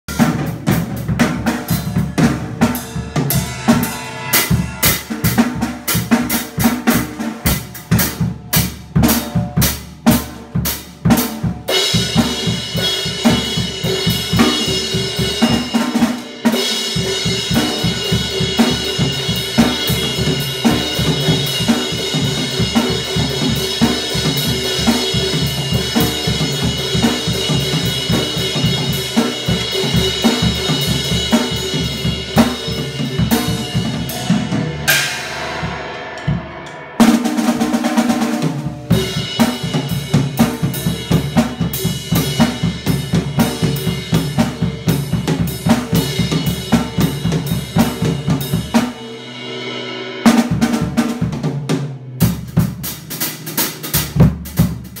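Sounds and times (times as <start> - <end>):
bass drum and snare thumping: 0.1 - 16.0, 16.9 - 49.0, 50.3 - 55.0
ringing cymbal wash: 1.8 - 6.8.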